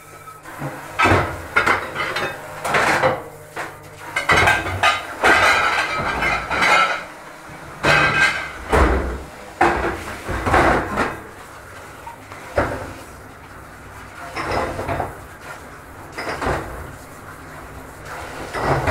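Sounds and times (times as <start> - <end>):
dish rack clattering on steel: 4.2 - 7.1.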